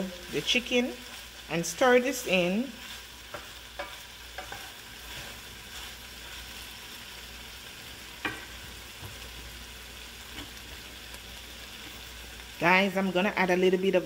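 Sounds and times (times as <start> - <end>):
food sizzling in a frying pan: 0.0 - 14.0
wooden spatula stirring: 2.7 - 6.4.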